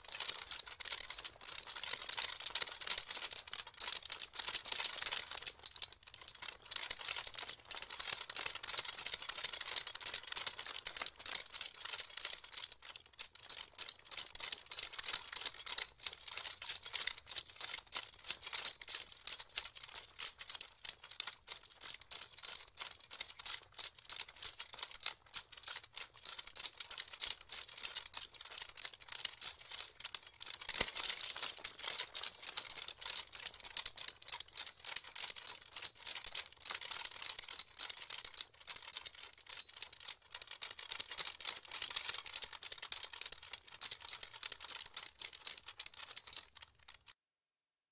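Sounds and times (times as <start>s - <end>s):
harness hardware and spurs jingling: 14.7s - 36.4s.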